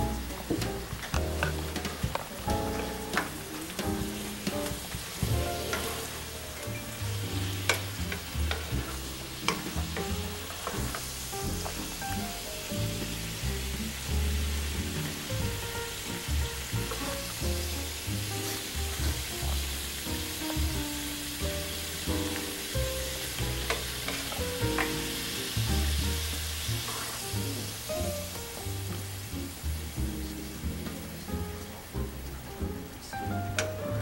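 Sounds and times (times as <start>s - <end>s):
background music: 0.0s - 34.0s
tofu sizzling in a frying pan: 0.0s - 34.0s
wooden spatula scraping: 4.3s - 6.4s.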